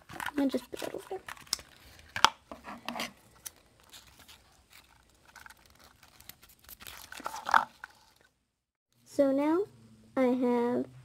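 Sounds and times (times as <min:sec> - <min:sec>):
ribbon rustling: 0:00.0 - 0:08.3.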